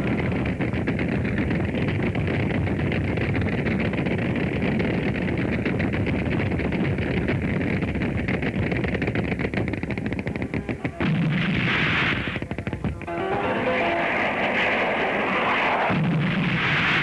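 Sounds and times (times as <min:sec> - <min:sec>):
anti-aircraft guns firing: 0:00.0 - 0:13.1, 0:14.0 - 0:17.0
loud blast: 0:10.3 - 0:12.4, 0:13.1 - 0:17.0.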